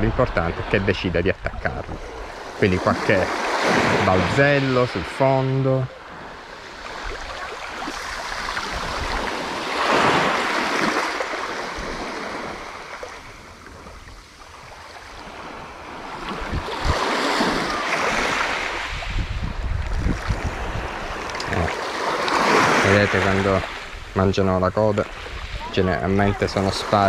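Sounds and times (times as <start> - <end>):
wind rumble on microphone: 0.0 - 4.5, 7.0 - 11.0, 11.7 - 21.7
sea waves washing on shore: 0.0 - 27.0.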